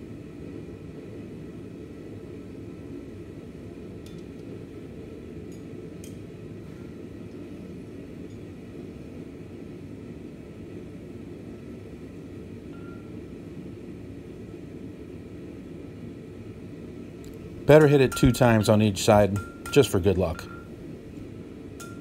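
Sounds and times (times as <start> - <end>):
gas forge burner roar: 13.4 - 22.0.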